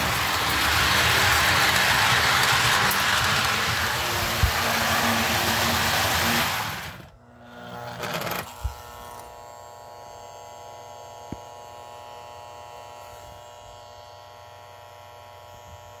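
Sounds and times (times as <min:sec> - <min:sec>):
toy train running on track: 0:00.0 - 0:09.8
electric hum with buzz: 0:00.0 - 0:16.0.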